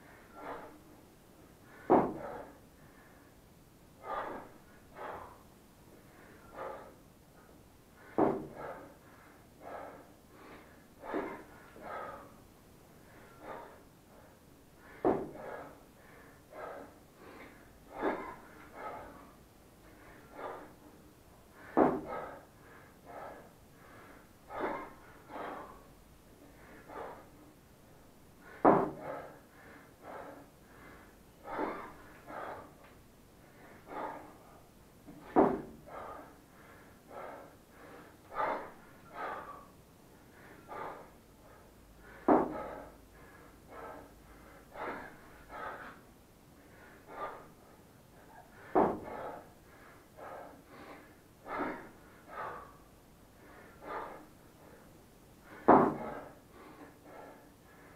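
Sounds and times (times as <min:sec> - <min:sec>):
man breathing hard: 0:00.0 - 0:57.9.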